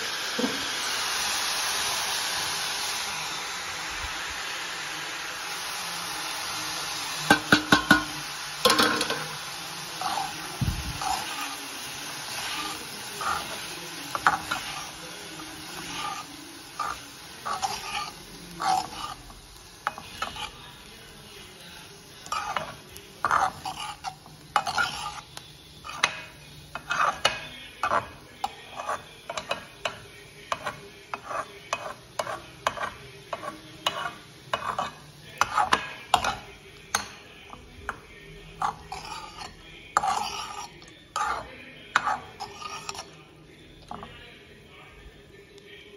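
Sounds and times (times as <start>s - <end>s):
light steady sizzle: 0.0s - 45.9s
spoon scraping metal pan: 7.2s - 20.7s, 22.2s - 43.2s.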